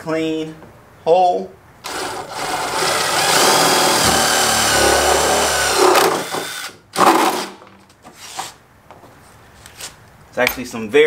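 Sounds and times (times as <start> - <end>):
cordless drill boring plastic: 1.9 - 6.8.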